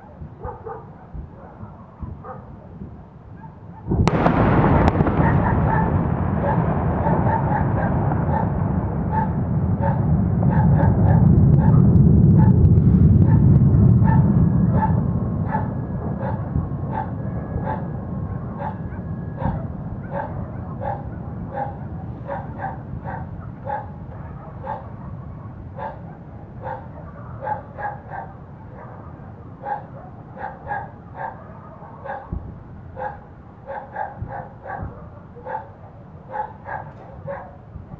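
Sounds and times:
dogs barking: 0.1 - 2.7, 3.3 - 12.6, 13.2 - 37.7
low explosion rumble: 3.8 - 29.5.

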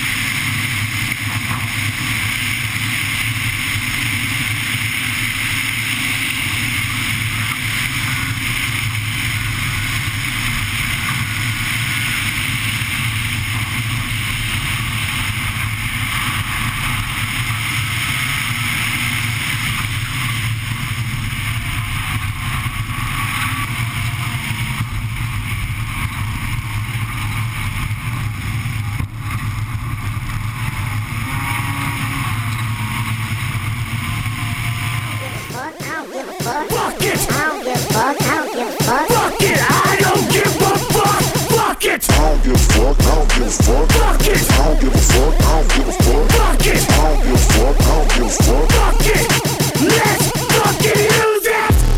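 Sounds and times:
car engine running hard: 38.7 - 51.0.

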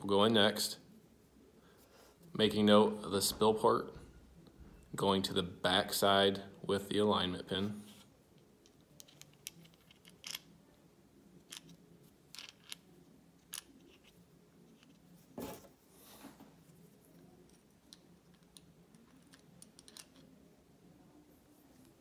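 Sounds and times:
small metal parts clicking: 8.6 - 10.5, 11.4 - 14.1, 17.5 - 20.3.

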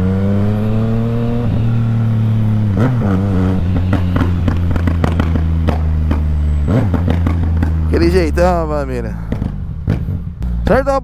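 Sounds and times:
motorcycle engine revving: 0.0 - 11.0
exhaust crackles and pops: 2.4 - 11.0.

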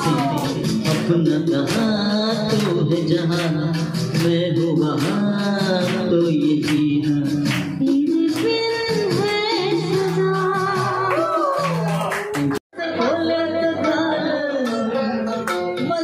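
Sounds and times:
man singing into a microphone: 0.0 - 8.6, 12.8 - 16.0
instrumental backing music: 0.0 - 16.0.

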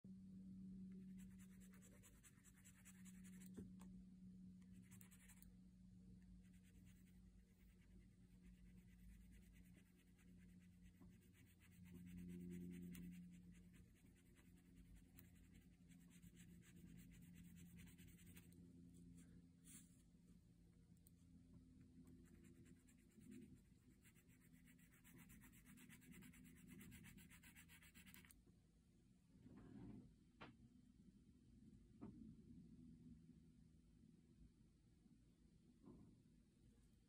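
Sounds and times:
low steady hum: 0.1 - 37.0
pencil scratching on paper: 1.2 - 3.6, 4.8 - 5.4, 6.4 - 18.5, 22.2 - 28.3.

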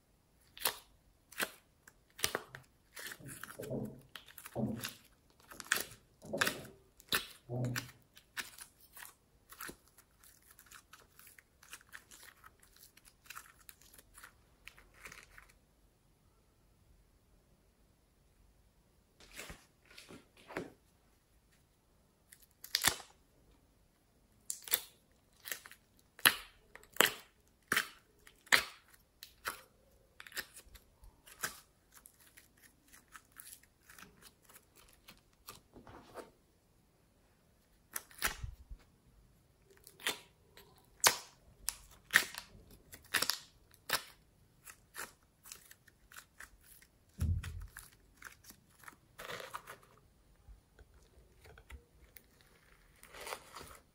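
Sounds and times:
slime popping and crackling: 0.5 - 15.4, 39.8 - 49.7
low thump: 47.2 - 47.7.

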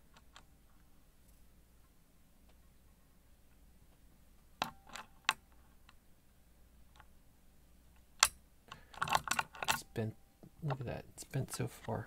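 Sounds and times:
lock pick metallic clicks: 4.6 - 6.0, 8.0 - 10.0.

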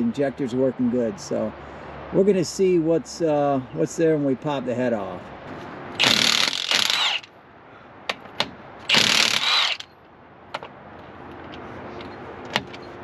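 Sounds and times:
ratchet wrench clicking: 6.0 - 7.3, 8.9 - 9.9
sharp metal clicks: 8.1 - 9.9.

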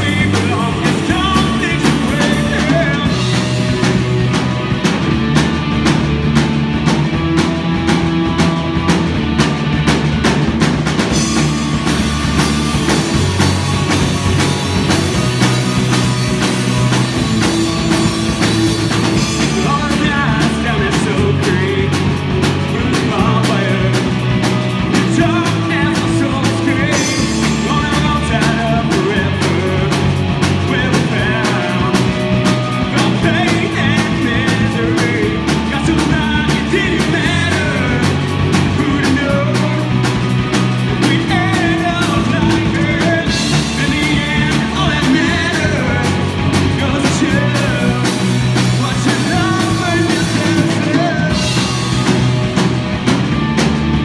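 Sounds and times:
man singing lead vocal: 0.0 - 4.0, 13.8 - 52.2
distorted electric guitar: 0.0 - 54.0
drum kit beat: 0.0 - 54.0
electric bass: 0.0 - 54.0.

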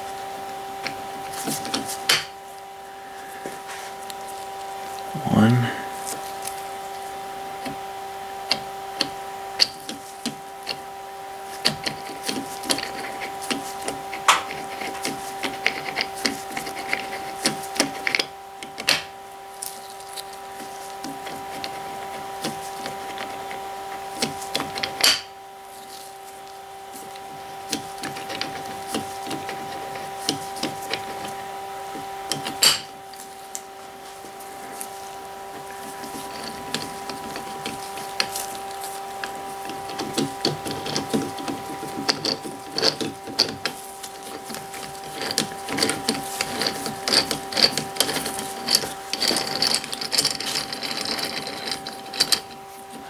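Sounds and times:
steady hum: 0.0 - 53.0
metal clicks and scraping: 11.5 - 53.0.

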